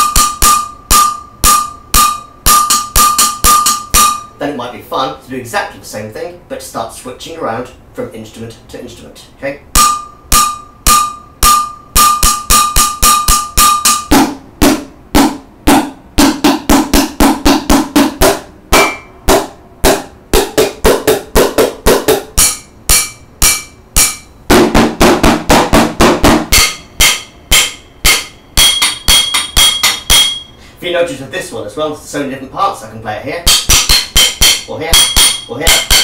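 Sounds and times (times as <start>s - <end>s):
drumsticks on kitchen percussion: 0.0s - 4.3s, 9.8s - 24.3s, 25.0s - 30.6s, 33.4s - 36.0s.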